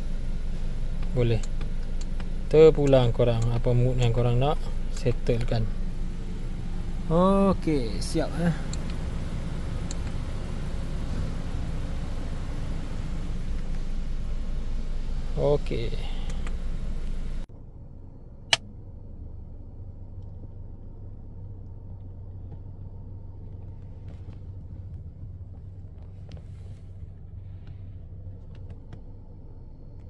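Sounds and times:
fan-like hiss: 0.0 - 17.5
car cabin hum: 0.0 - 30.0.

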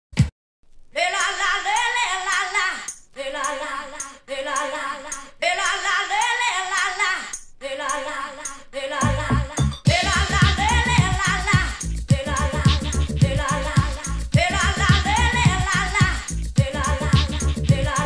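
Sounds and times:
person singing wavering phrases: 1.0 - 18.0
light high-pitched percussion ticks: 2.9 - 5.8, 6.8 - 18.0.

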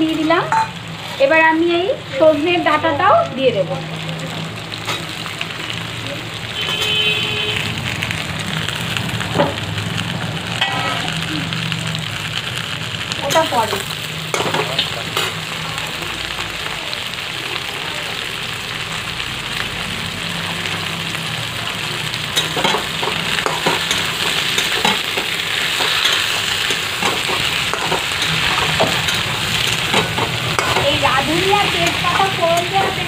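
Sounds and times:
vegetables sizzling in oil: 0.0 - 33.0
metal spatula scraping pan: 22.3 - 33.0.

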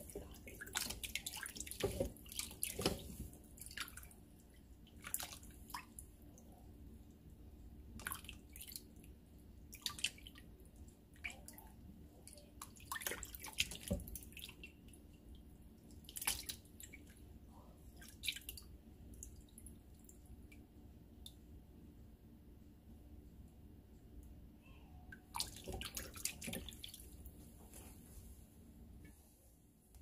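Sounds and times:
water splashing and dripping: 0.0 - 6.5, 8.0 - 8.8, 12.4 - 14.8, 16.0 - 17.1, 25.2 - 27.1.

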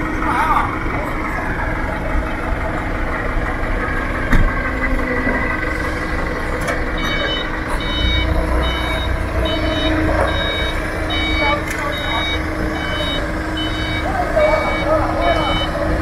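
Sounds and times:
forklift engine rumbling: 0.0 - 16.0
reversing alarm beeping: 3.9 - 16.0.

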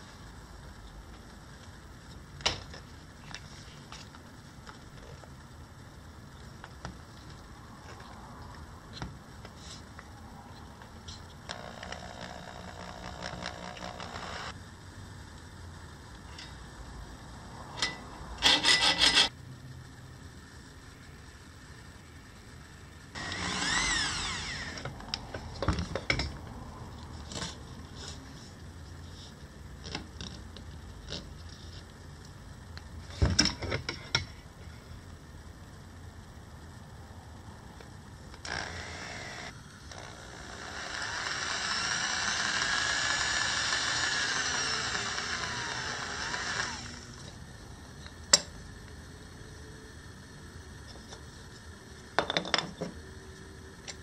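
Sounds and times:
electric drill boring into wood: 11.5 - 14.5, 23.2 - 24.9, 38.4 - 47.2
hacksaw cutting wood: 18.4 - 19.3.

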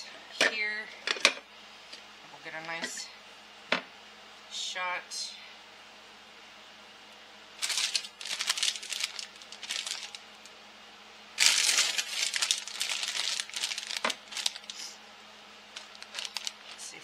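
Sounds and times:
crinkling and rustling: 7.6 - 10.5, 11.4 - 14.8, 15.7 - 17.0.

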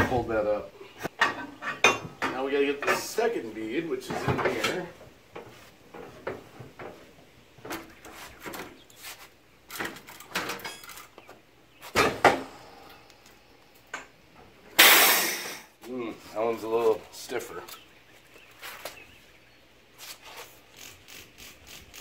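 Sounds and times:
metal clanks of tire tool: 14.8 - 15.7.

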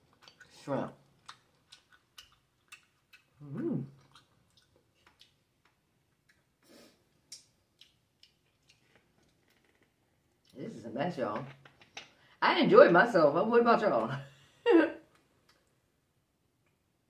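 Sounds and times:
chewing: 0.0 - 10.6.

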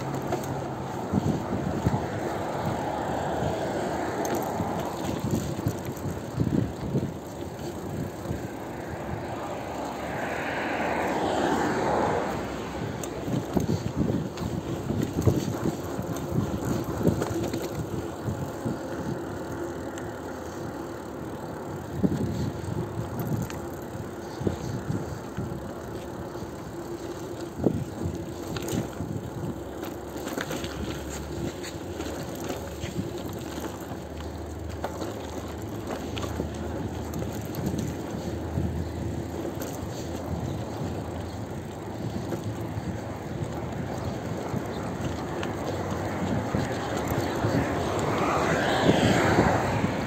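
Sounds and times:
bicycle knocks and clicks: 0.0 - 10.0, 11.1 - 49.8
bicycle rattling: 0.0 - 50.0.

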